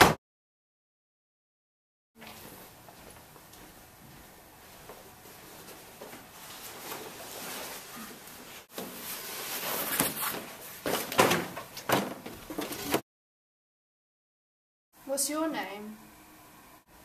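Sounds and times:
rustling of person moving: 0:02.2 - 0:13.0.

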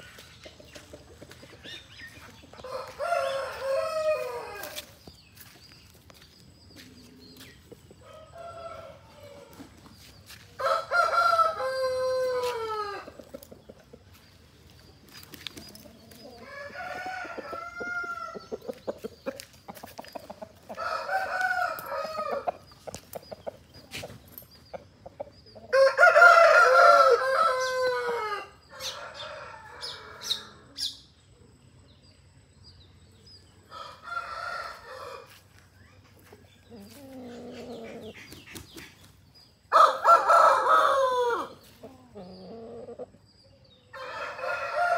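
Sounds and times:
roosters crowing: 0:02.5 - 0:05.0, 0:08.0 - 0:09.8, 0:10.6 - 0:13.3, 0:15.7 - 0:18.8, 0:20.6 - 0:22.7, 0:25.6 - 0:30.9, 0:33.7 - 0:35.5, 0:39.7 - 0:43.1, 0:43.9 - 0:44.9.

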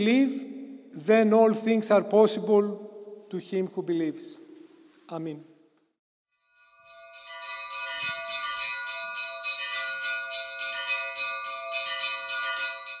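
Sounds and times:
church bells ringing: 0:06.4 - 0:13.0.

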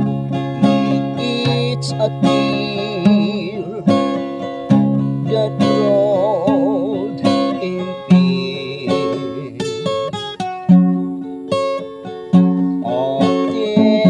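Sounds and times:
man singing: 0:00.0 - 0:04.5, 0:05.1 - 0:10.5, 0:12.7 - 0:14.0
acoustic guitar strumming: 0:00.0 - 0:14.0.

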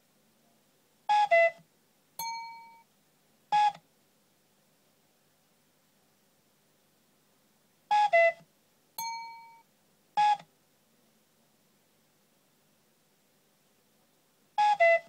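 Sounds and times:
ringing tone: 0:02.2 - 0:02.8, 0:09.0 - 0:09.6.

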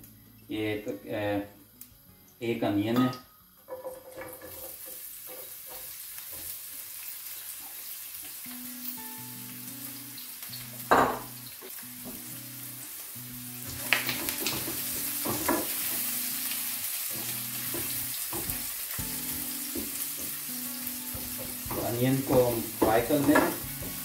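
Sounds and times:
quiet background music: 0:00.0 - 0:07.1, 0:07.8 - 0:24.0
onion sizzling in oil: 0:03.7 - 0:24.0
wooden spatula stirring in pan: 0:17.1 - 0:24.0.

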